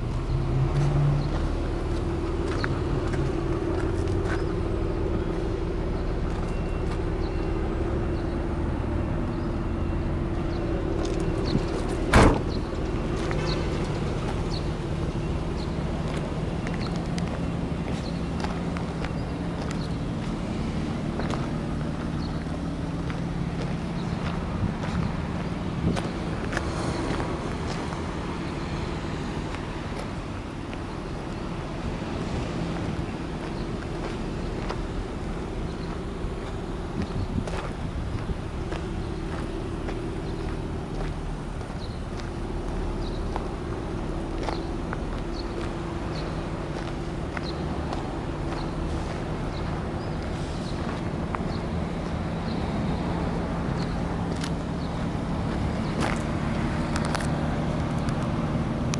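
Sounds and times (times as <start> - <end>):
car engine idling: 0.0 - 58.9
tyres crackling on gravel: 0.0 - 58.9
car door slamming: 12.0 - 12.7.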